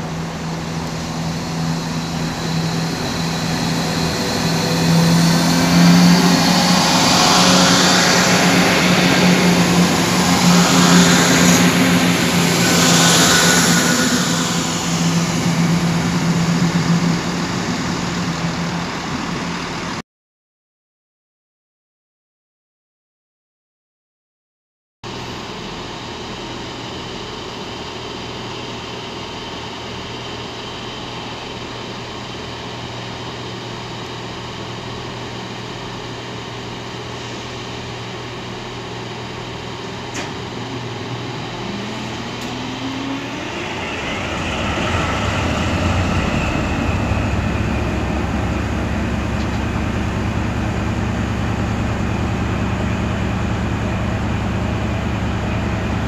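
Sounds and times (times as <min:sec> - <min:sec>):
locomotive engine running: 0:00.0 - 0:20.0, 0:33.0 - 0:56.0
rising whine: 0:00.0 - 0:20.0, 0:30.5 - 0:56.0.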